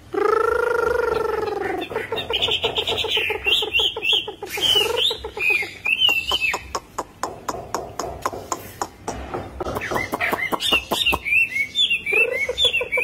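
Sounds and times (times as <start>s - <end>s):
bird singing: 0.0s - 8.4s, 9.1s - 13.0s
bird clicks: 5.9s - 11.2s.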